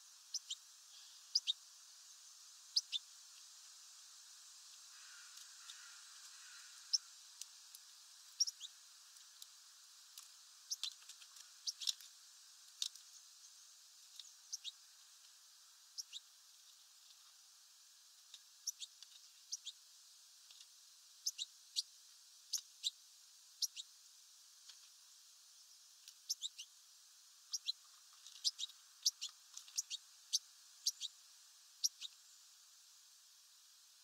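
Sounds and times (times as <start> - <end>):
small songbirds chirping: 0.0 - 34.0.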